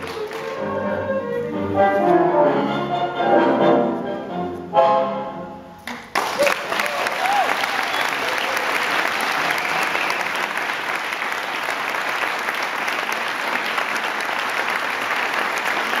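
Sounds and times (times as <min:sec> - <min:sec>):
audience applauding: 0:00.0 - 0:00.6, 0:05.9 - 0:16.0.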